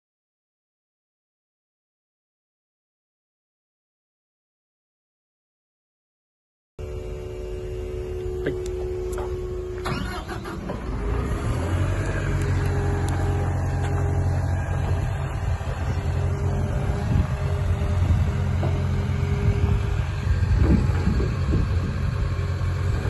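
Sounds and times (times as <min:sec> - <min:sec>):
excavator diesel engine running: 0:06.8 - 0:23.0.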